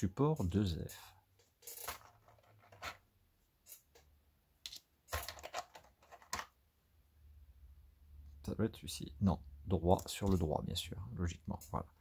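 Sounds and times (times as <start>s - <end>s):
plastic parts clicking and rustling: 0.8s - 3.0s, 4.6s - 6.6s.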